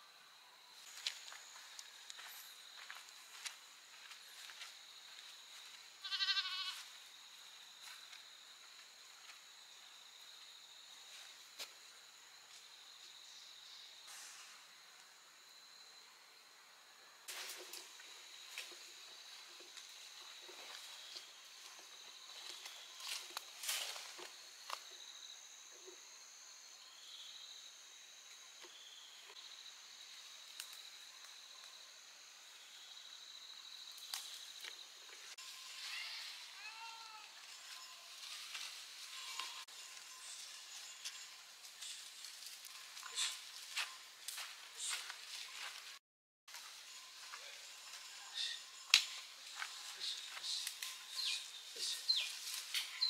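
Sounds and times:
high-pitched insect chorus: 0:00.0 - 0:53.0
animal bleat: 0:06.0 - 0:06.8, 0:35.4 - 0:38.2, 0:39.1 - 0:39.6.

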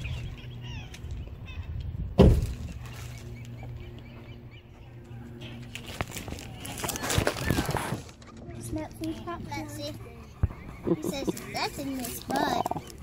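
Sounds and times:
steady low hum: 0:00.0 - 0:13.0
loud thump: 0:02.2 - 0:02.6.

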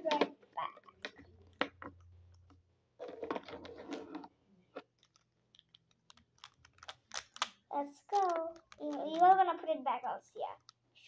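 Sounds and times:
plastic markers clicking and rattling: 0:04.8 - 0:09.5, 0:10.6 - 0:10.8.

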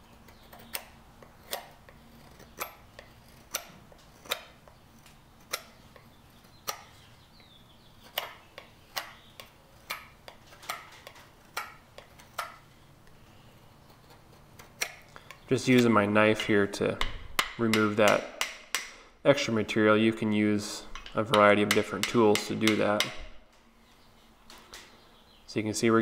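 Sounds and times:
knife shaving wood: 0:00.1 - 0:07.1, 0:08.0 - 0:15.4.

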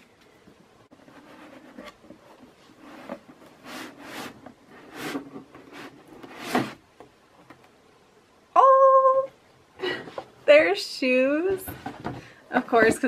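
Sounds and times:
cardboard lid rubbing and scraping: 0:01.0 - 0:06.8.

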